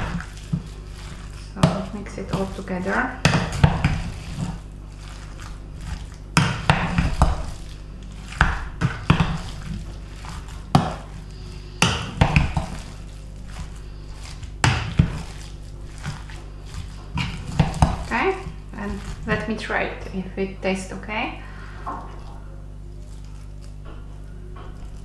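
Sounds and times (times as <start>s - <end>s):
utensil knocking and scraping bowl: 0.0s - 19.7s.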